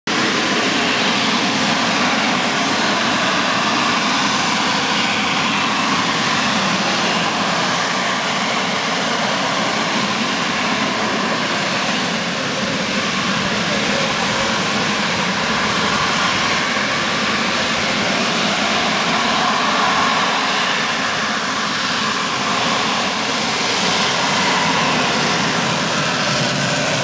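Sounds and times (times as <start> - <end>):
jet engine roaring: 0.0 - 27.0.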